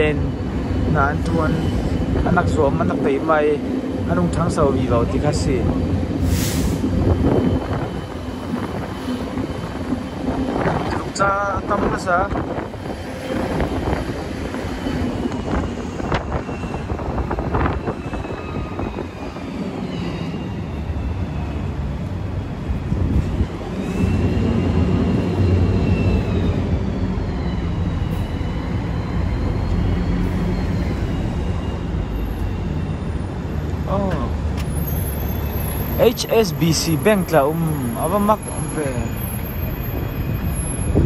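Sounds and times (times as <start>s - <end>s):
bus engine and road rumble: 0.0s - 12.9s, 32.0s - 41.0s.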